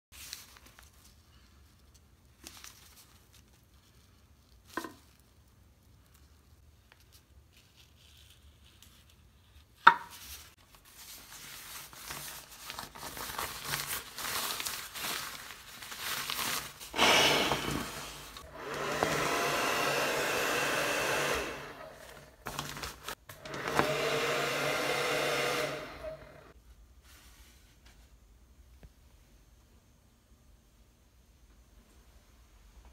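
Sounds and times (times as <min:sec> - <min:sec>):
nylon fabric crinkling: 0:10.3 - 0:17.0
small electric blower running: 0:17.0 - 0:22.4, 0:23.3 - 0:26.5.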